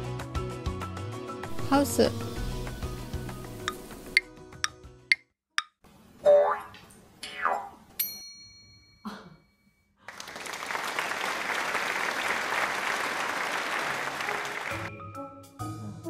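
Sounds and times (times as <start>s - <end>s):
background music: 0.0s - 5.2s, 13.7s - 16.0s
applause: 10.1s - 14.9s.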